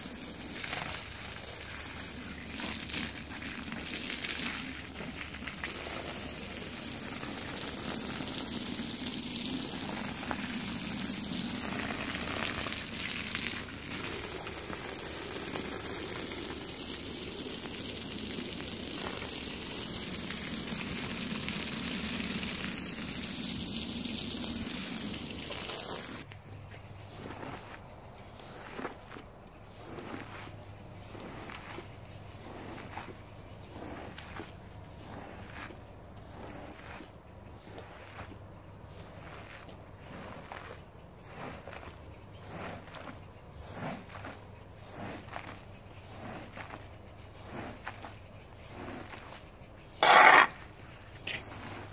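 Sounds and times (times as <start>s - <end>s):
water jet spraying: 0.0s - 26.2s.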